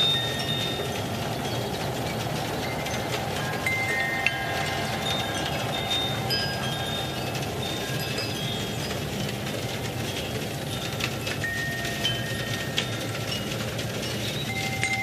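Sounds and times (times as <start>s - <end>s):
low rushing background: 0.0s - 11.3s
wind chimes ringing: 0.0s - 15.0s.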